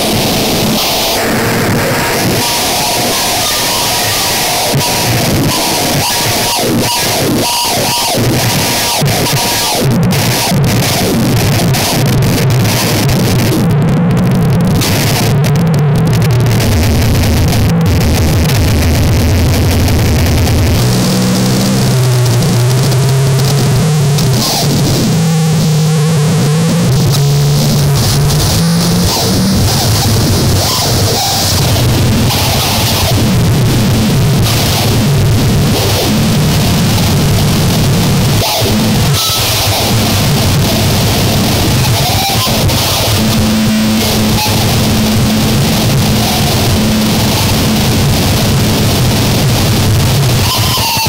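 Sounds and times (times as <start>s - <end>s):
distorted static and hiss: 0.0s - 51.0s
harsh noise music: 0.0s - 51.0s
low droning tones: 14.2s - 50.4s.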